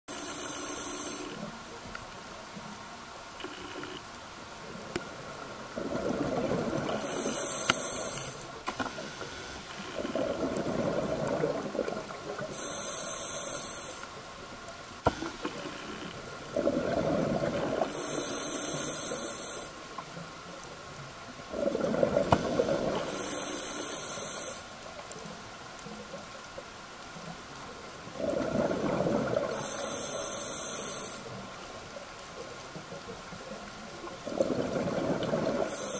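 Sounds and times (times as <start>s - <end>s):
regulator hissing inhale: 0.1s - 1.5s, 6.9s - 10.1s, 12.4s - 14.2s, 17.9s - 19.8s, 22.3s - 24.7s, 29.5s - 31.4s, 35.6s - 35.9s
faint steady hum: 0.1s - 35.9s
diver exhaling bubbles: 5.7s - 8.4s, 9.4s - 12.7s, 15.1s - 18.8s, 21.5s - 23.7s, 28.2s - 30.0s, 34.2s - 35.9s.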